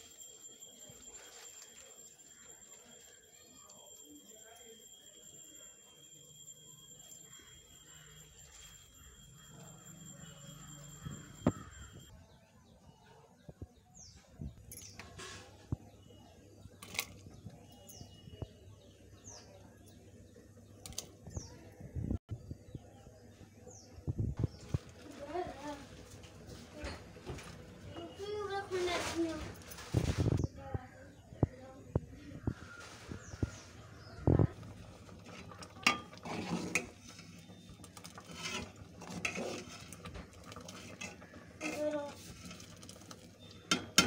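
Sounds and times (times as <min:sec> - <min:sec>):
metal ladle scraping steel pot: 0:34.6 - 0:44.0.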